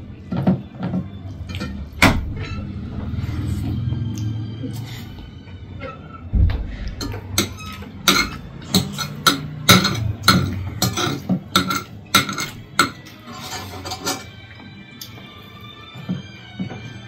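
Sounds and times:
low thump: 6.3 - 7.0
metal spoon clinking on plate: 7.0 - 14.3.

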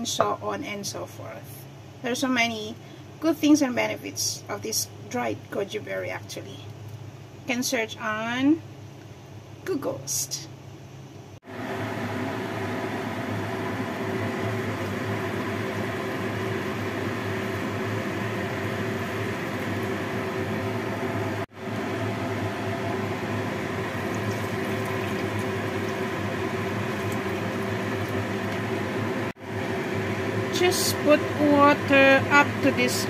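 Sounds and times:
gas burner hissing: 11.5 - 33.0.

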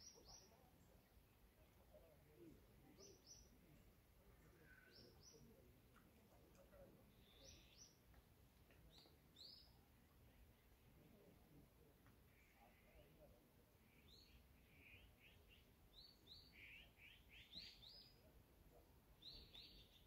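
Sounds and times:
faint bird chirps: 0.0 - 5.7, 7.0 - 8.0, 12.2 - 18.3, 19.2 - 20.0.

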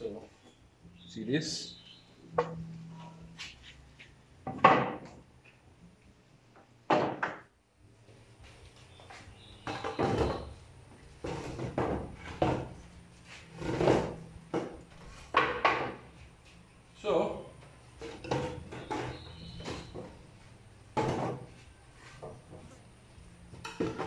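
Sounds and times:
wooden planks knocking: 4.5 - 5.2, 9.6 - 10.6, 11.2 - 12.8, 13.7 - 16.1.

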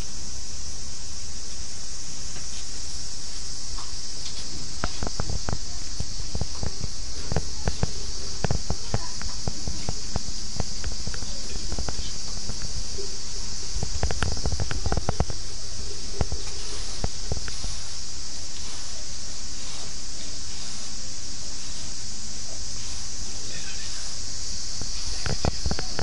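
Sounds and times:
steady high hiss: 0.0 - 26.0.

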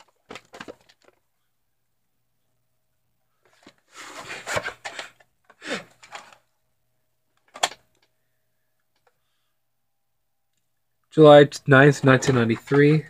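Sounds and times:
plastic cases scraping on shelf: 3.5 - 6.4.

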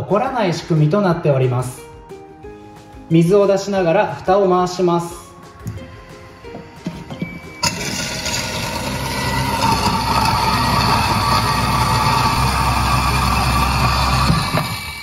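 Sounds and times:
food waste disposer grinding: 6.8 - 15.0.

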